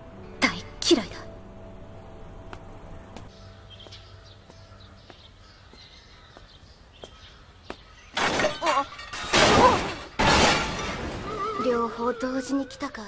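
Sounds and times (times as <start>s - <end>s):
loud crash of something breaking: 8.2s - 11.4s.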